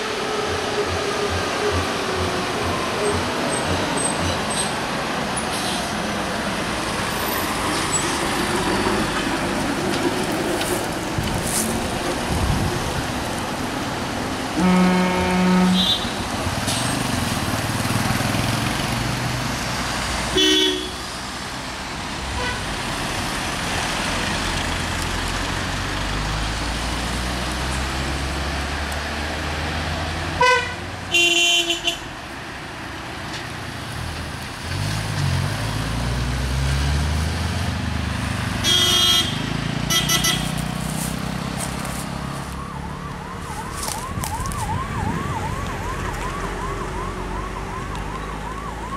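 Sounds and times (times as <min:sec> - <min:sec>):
vehicle engines passing: 0:00.0 - 0:48.9
short horn toots: 0:38.6 - 0:40.6.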